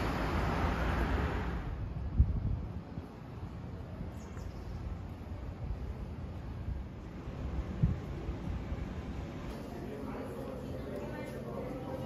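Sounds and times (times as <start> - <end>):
wind buffeting microphone: 1.6 - 9.5.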